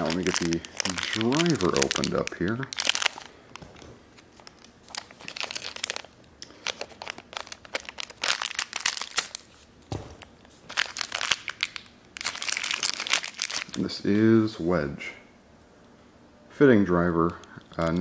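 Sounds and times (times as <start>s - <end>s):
plastic bag crinkling: 0.0s - 9.6s, 10.2s - 14.0s.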